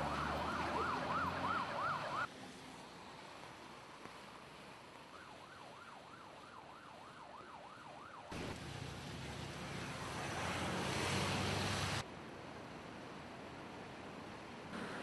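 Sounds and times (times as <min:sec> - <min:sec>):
emergency siren wailing: 0:00.0 - 0:02.3, 0:05.1 - 0:08.4.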